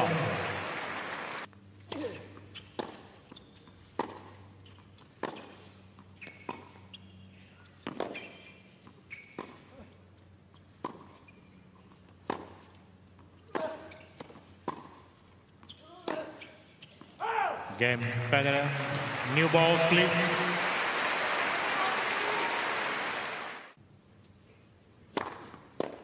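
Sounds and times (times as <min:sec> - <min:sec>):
tennis ball bouncing: 0:02.7 - 0:03.1, 0:03.9 - 0:04.4, 0:05.0 - 0:06.9, 0:07.8 - 0:09.6, 0:12.1 - 0:15.1
tennis rackets striking ball: 0:04.0 - 0:04.3, 0:07.8 - 0:08.2, 0:12.2 - 0:12.6, 0:13.5 - 0:15.1.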